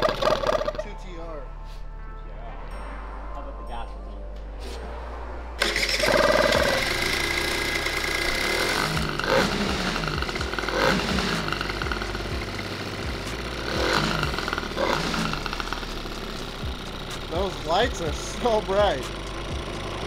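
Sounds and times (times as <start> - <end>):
two-stroke scooter engine running: 0.0 - 0.9, 5.6 - 20.0.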